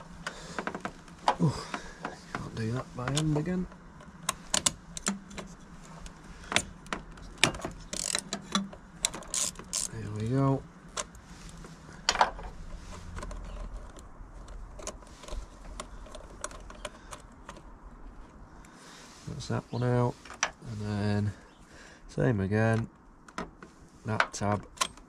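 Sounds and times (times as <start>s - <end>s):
ratchet wrench clicking: 7.9s - 8.6s.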